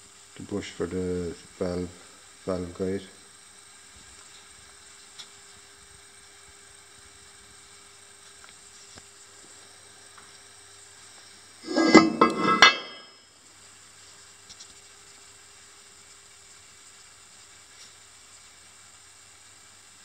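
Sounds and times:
faint steady hum: 0.0s - 20.0s
metal clattering on metal table: 11.6s - 13.2s.

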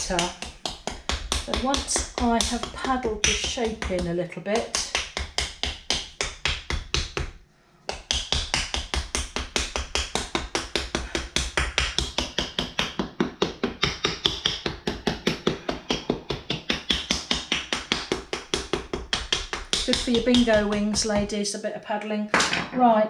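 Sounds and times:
wooden paddle tapping clay bowl: 0.0s - 7.3s.

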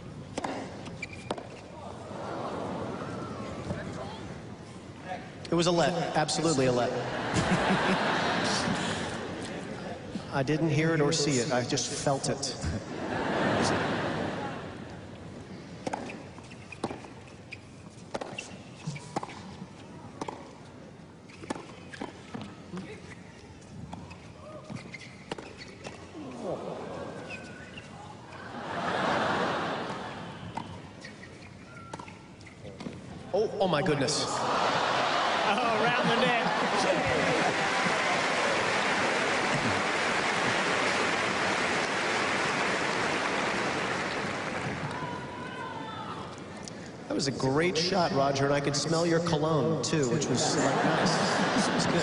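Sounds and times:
crowd murmur: 34.3s - 47.0s.

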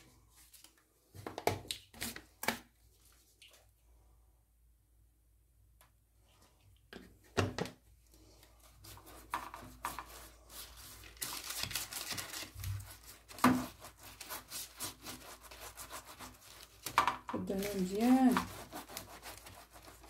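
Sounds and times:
baking paper rustling and crinkling: 8.3s - 20.0s.

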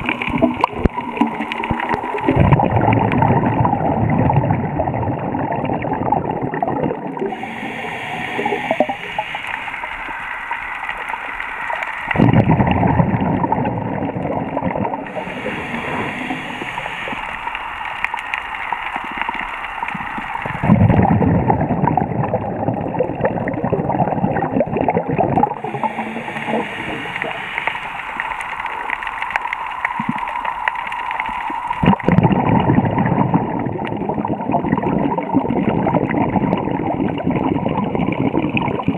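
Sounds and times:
exhaled bubbles gushing: 0.0s - 38.9s
hissing inhale through regulator: 7.2s - 13.3s, 14.9s - 21.2s, 25.5s - 32.6s.

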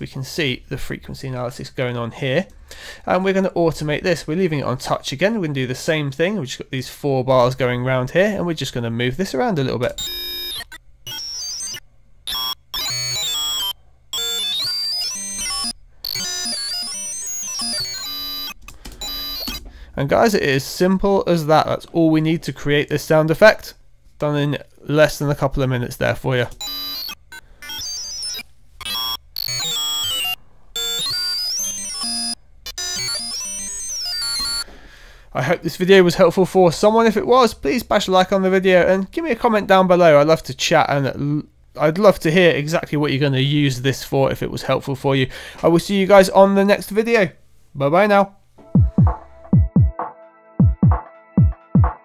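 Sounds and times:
gritty digital tones: 9.8s - 20.4s, 26.6s - 34.6s.

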